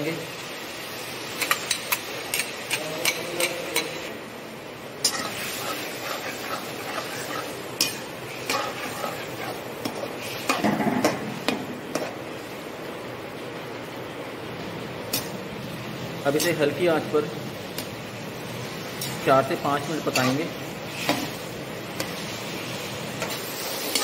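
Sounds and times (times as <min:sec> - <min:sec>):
ladle scraping a pan: 0:05.1 - 0:10.6.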